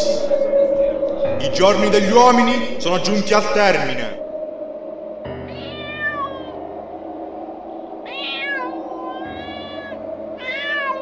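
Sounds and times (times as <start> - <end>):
steady low drone: 0.0 - 11.0
meow-like animal cries: 5.5 - 6.6, 8.0 - 11.0.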